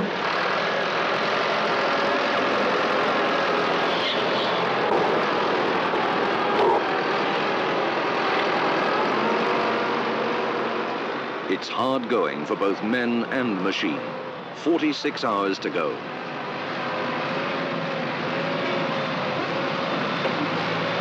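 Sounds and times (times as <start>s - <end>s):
tractor diesel engine running: 0.0s - 21.0s.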